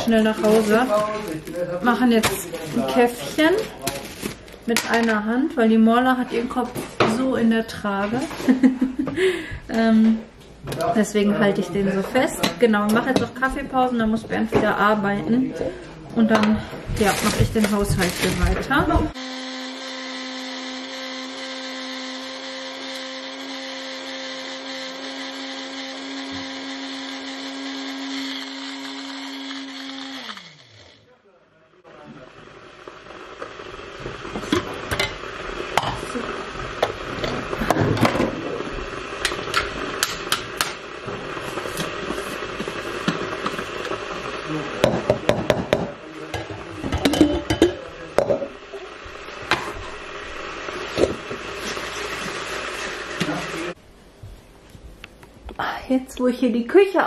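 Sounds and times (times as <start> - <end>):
appliance whirring: 16.4 - 31.1, 31.9 - 53.8.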